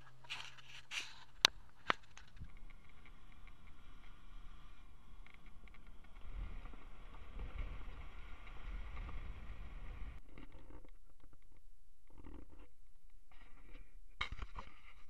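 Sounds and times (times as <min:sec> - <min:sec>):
vehicle engine and tyre rumble: 0:00.0 - 0:10.8
quiet uneven sound: 0:00.0 - 0:15.0.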